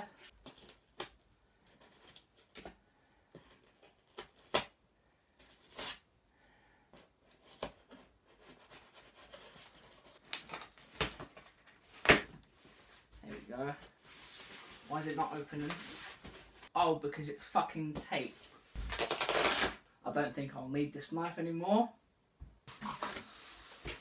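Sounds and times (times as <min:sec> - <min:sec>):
knife cutting packing tape: 0:18.8 - 0:19.8.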